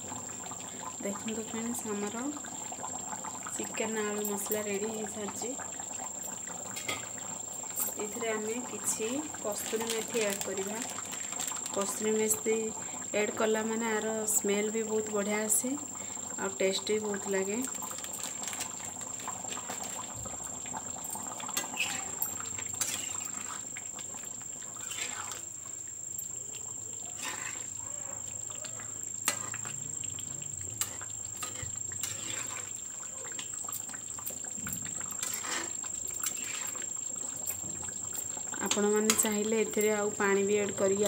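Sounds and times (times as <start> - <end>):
curry bubbling and popping: 0.0 - 14.4, 15.0 - 41.0
metal spatula scraping pan: 21.6 - 23.7, 24.8 - 25.4, 27.2 - 27.8, 30.8 - 32.7, 35.2 - 36.8.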